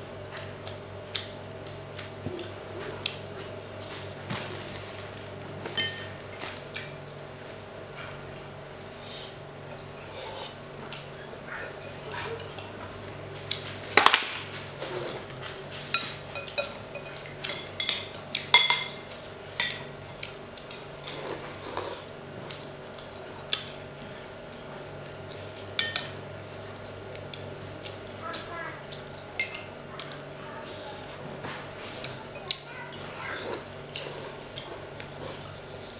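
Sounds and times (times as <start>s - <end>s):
faint steady hum: 0.0s - 35.9s
cutlery clinking on plates: 5.7s - 6.1s, 15.9s - 19.0s.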